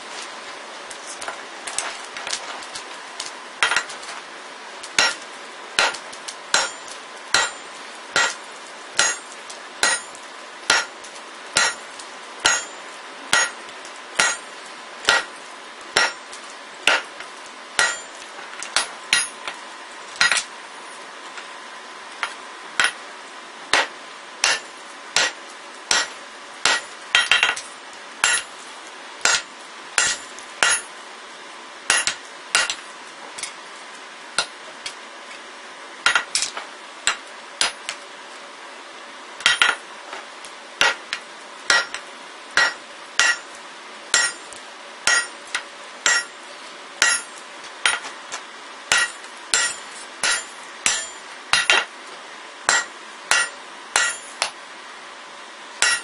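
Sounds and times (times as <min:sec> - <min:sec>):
hammer striking steel on anvil: 0:05.0 - 0:05.2, 0:05.8 - 0:07.6, 0:08.2 - 0:08.4, 0:09.0 - 0:10.9, 0:11.6 - 0:11.8, 0:12.4 - 0:13.6, 0:14.2 - 0:14.4, 0:15.1 - 0:15.3, 0:16.0 - 0:16.2, 0:16.9 - 0:17.1, 0:17.8 - 0:18.2, 0:18.8 - 0:19.4, 0:20.2 - 0:20.4, 0:23.7 - 0:27.6, 0:28.2 - 0:28.5, 0:29.2 - 0:30.9, 0:31.9 - 0:32.8, 0:39.4 - 0:39.8, 0:41.7 - 0:42.0, 0:42.6 - 0:43.5, 0:44.1 - 0:44.5, 0:45.1 - 0:45.4, 0:46.0 - 0:46.4, 0:47.0 - 0:48.1, 0:48.9 - 0:51.9, 0:52.7 - 0:54.6, 0:55.8 - 0:56.0.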